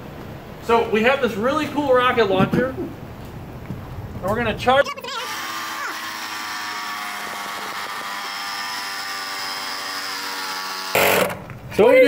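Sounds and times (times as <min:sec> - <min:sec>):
electric air compressor running: 0:05.2 - 0:11.5.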